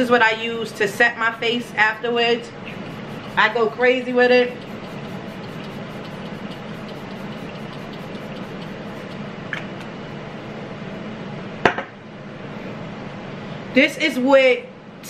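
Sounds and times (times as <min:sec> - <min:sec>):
low room hum: 0:00.0 - 0:15.0
face mist spray hiss: 0:02.7 - 0:03.6, 0:04.5 - 0:09.2.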